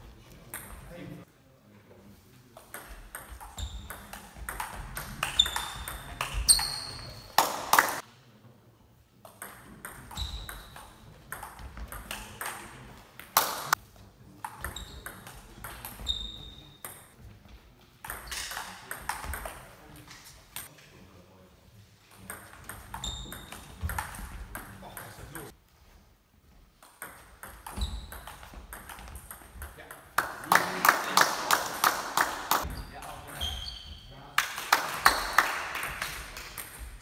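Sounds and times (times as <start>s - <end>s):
table tennis ball hitting bats: 2.6s - 8.0s, 9.2s - 13.8s, 14.4s - 16.1s, 18.0s - 19.7s, 22.1s - 25.5s, 26.8s - 33.5s, 34.4s - 37.0s.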